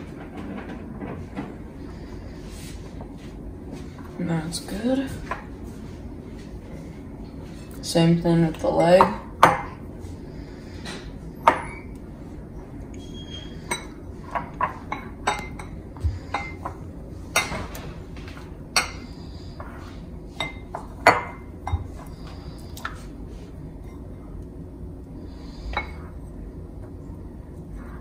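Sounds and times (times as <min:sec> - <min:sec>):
ceramic bowls clinking: 0:13.6 - 0:17.7, 0:20.3 - 0:22.1.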